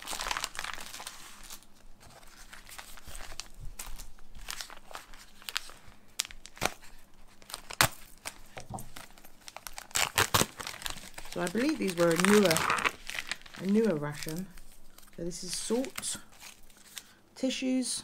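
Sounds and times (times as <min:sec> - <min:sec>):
plastic packet tearing and crinkling: 0:00.0 - 0:17.1.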